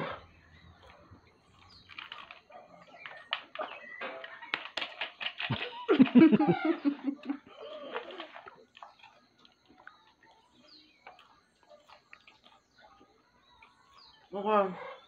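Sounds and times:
plastic bowls handled: 0.0 - 9.8
popcorn chewing crunches: 0.0 - 14.3.

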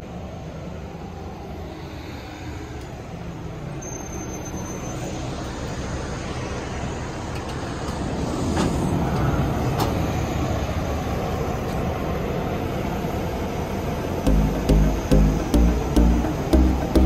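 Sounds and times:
engine rumble of ramp vehicles: 0.0 - 17.0
background music with a beat: 14.3 - 17.0.

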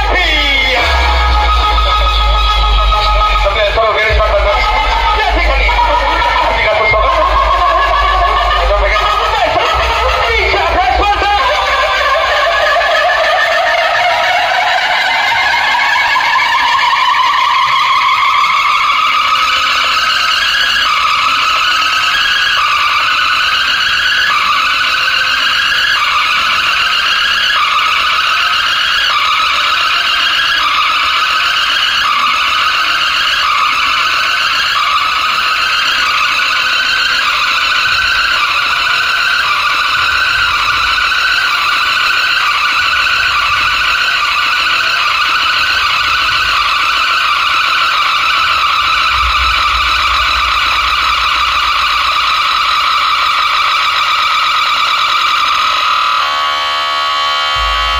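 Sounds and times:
deep bass: 0.0 - 12.7, 48.1 - 54.1, 57.6 - 57.9
loud electronic dance music: 0.0 - 57.9.

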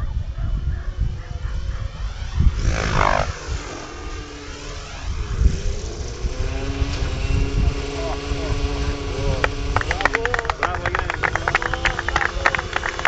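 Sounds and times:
wind on microphone: 0.0 - 13.0
model helicopter motor and rotor: 0.1 - 13.0.

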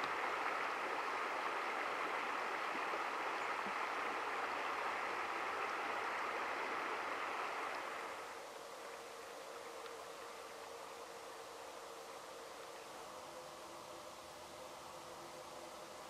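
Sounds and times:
flowing river water: 0.0 - 16.0.

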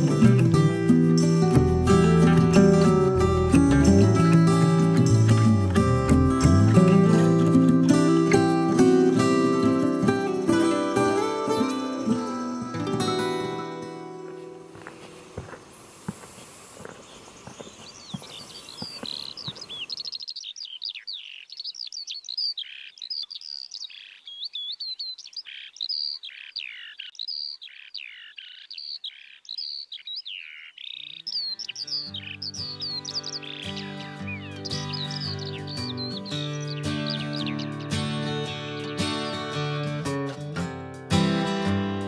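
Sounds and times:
songbird singing: 0.0 - 40.5
footsteps on stony path: 13.0 - 20.2.

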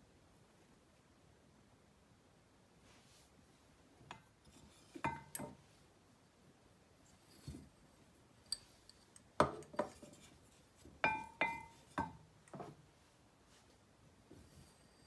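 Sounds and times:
wooden spoon knocking on glass jug: 11.0 - 12.8.

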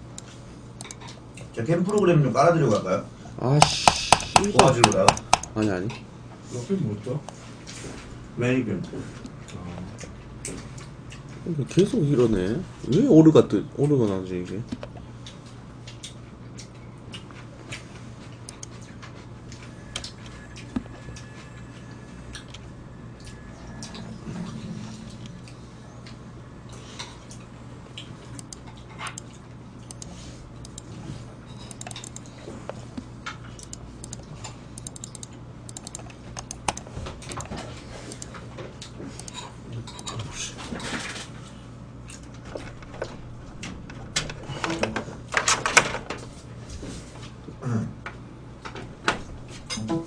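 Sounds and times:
keyboard typing and mouse clicks: 0.0 - 1.2, 1.8 - 2.1, 3.6 - 5.7, 18.4 - 21.4, 28.3 - 30.9, 31.6 - 32.8, 33.6 - 38.4, 39.1 - 39.4
low electrical hum: 0.0 - 50.0.

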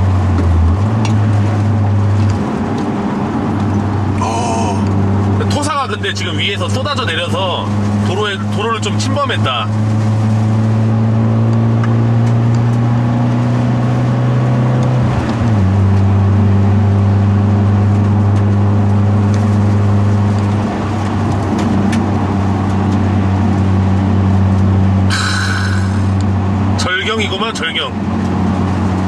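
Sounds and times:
car engine running: 0.0 - 29.0.

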